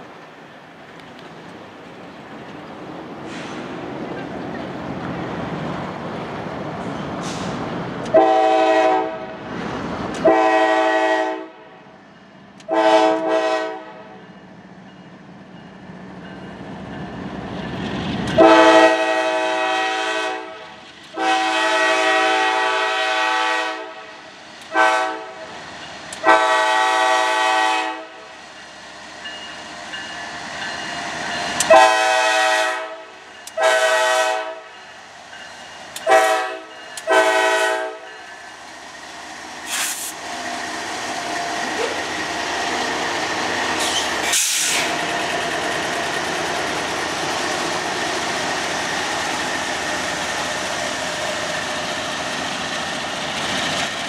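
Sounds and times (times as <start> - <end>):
diesel locomotives rumbling: 0.0 - 54.0
train wheel and rail noise: 0.0 - 54.0
locomotive horn blowing: 8.1 - 9.4, 10.2 - 11.7, 12.7 - 14.2, 18.4 - 25.5, 26.2 - 28.3, 31.6 - 34.7, 36.0 - 38.1.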